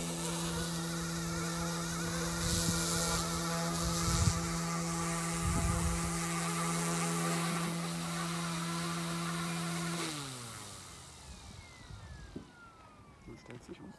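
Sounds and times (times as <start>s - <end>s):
rc helicopter motor and rotor whining: 0.0s - 13.9s
wind rumbling on microphone: 2.1s - 6.4s.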